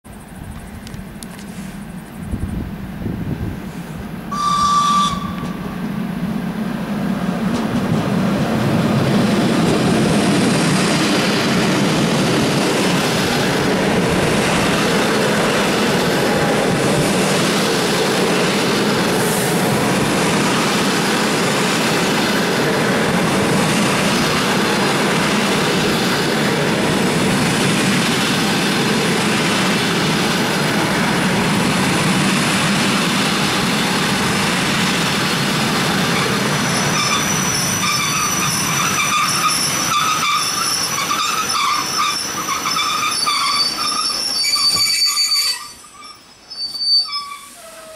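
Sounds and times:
train rumbling past: 0:00.1 - 0:47.9
locomotive horn blast: 0:04.3 - 0:05.7.

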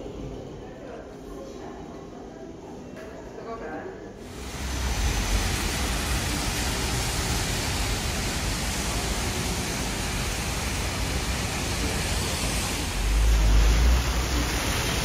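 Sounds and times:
steady rushing noise: 0:04.2 - 0:15.0.

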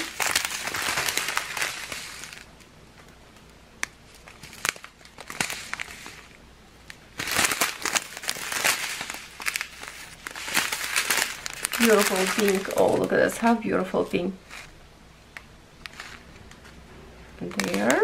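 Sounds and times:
plastic bags crinkling: 0:00.0 - 0:02.6, 0:03.8 - 0:13.7, 0:15.9 - 0:16.7, 0:17.4 - 0:18.0.

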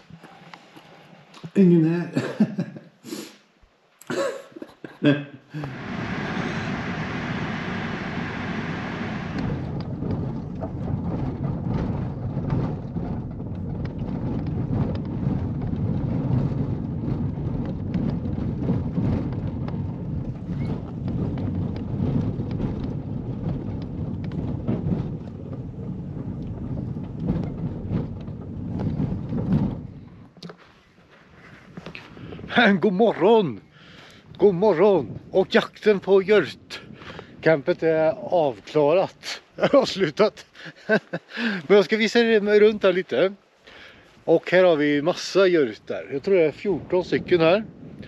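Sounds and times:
car tyres rumbling on dirt track: 0:05.6 - 0:48.0.

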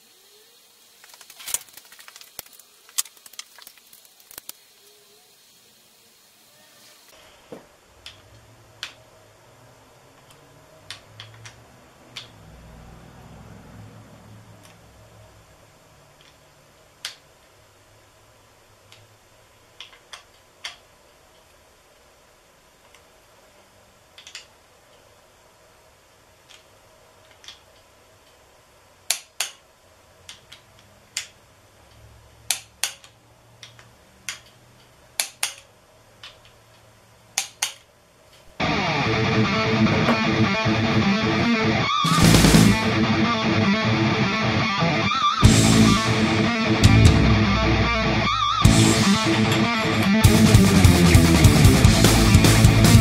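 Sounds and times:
low hum: 0:38.6 - 0:53.0.

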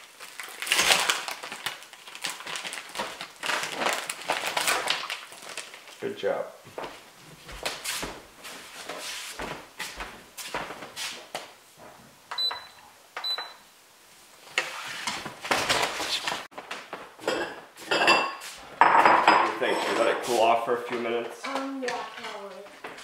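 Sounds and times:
wooden spoon scraping metal pot: 0:19.4 - 0:20.4.

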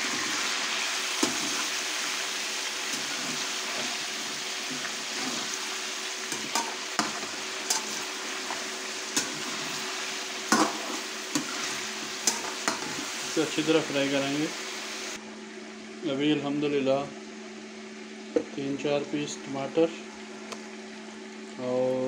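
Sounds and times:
chicken sizzling in oil: 0:00.0 - 0:15.2.

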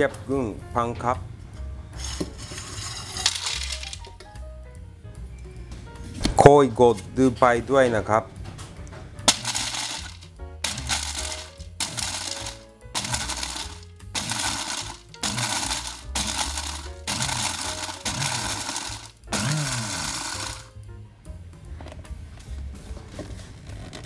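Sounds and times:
background music: 0:00.0 - 0:24.0
crackers rattling in plastic cup: 0:02.0 - 0:04.2, 0:09.3 - 0:20.7
blender motor whirring: 0:09.3 - 0:20.7.

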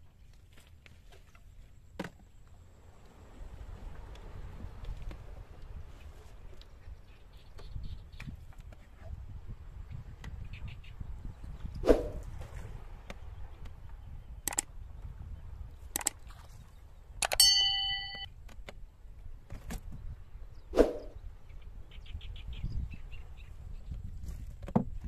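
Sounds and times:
metallic clang: 0:17.4 - 0:18.3.

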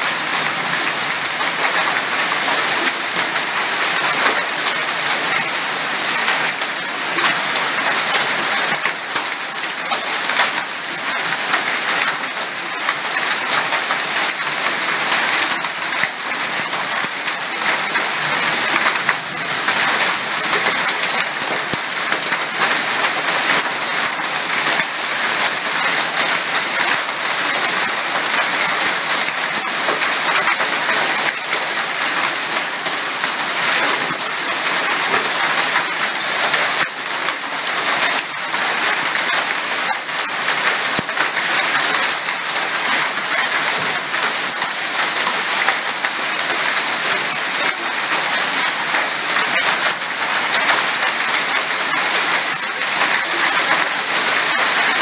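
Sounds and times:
heavy rain pattering on roofs: 0:00.0 - 0:55.0.

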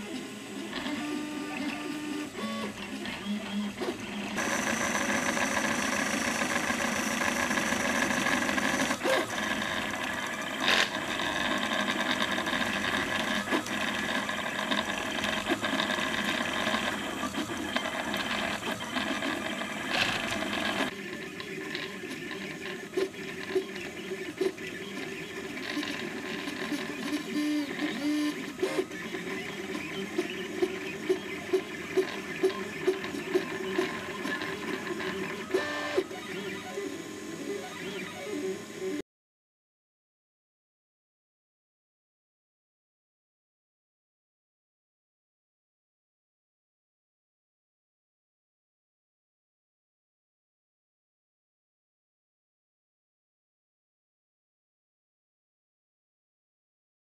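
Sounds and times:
stepper motors buzzing and whining: 0:00.6 - 0:20.9.

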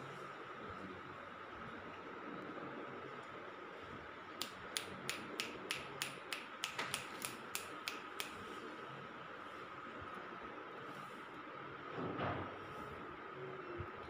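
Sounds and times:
sharp clicks: 0:04.4 - 0:08.4.

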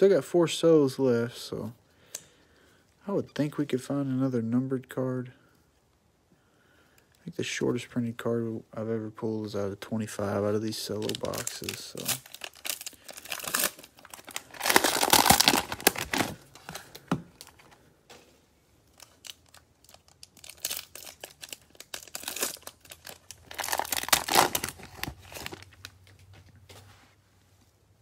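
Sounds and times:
cellophane wrapper crinkling and tearing: 0:10.7 - 0:17.8, 0:18.8 - 0:26.2.

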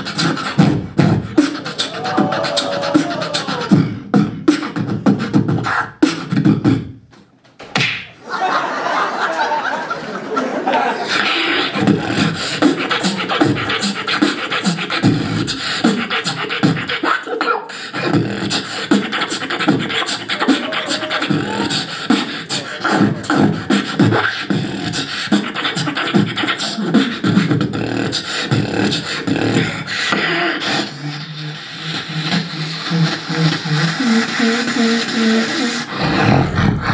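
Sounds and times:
beatboxing into microphone: 0:00.0 - 0:08.2, 0:10.7 - 0:36.9.

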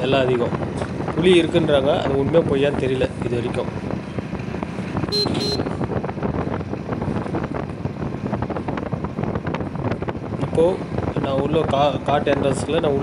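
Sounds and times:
motorcycle engine running: 0:00.0 - 0:13.0
wind buffeting microphone: 0:00.0 - 0:13.0
motorcycle horn beeps: 0:05.1 - 0:05.8.

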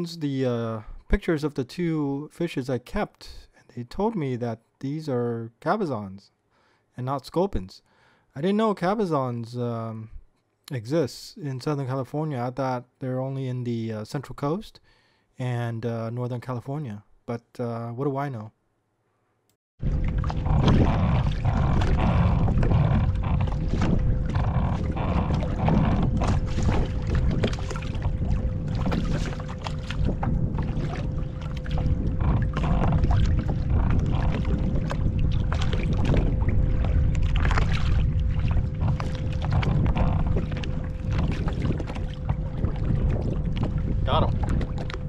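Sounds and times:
faint steady hum: 0:19.8 - 0:45.0
water splashing against hull: 0:19.8 - 0:45.0
wind rumbling on microphone: 0:19.8 - 0:45.0.

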